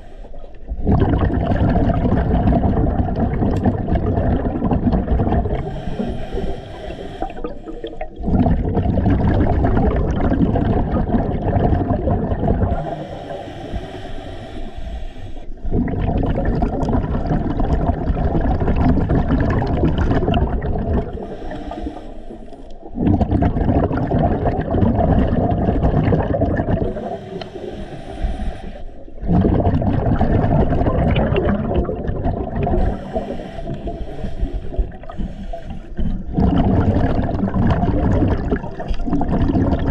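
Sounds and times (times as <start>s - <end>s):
rumble of exhaust bubbles: 0.7s - 5.8s, 8.0s - 12.9s, 15.6s - 21.3s, 22.8s - 27.1s, 29.2s - 33.2s, 35.9s - 39.9s
hissing regulator inhale: 5.6s - 8.2s, 12.7s - 15.6s, 21.1s - 22.9s, 26.9s - 29.2s, 32.7s - 36.1s.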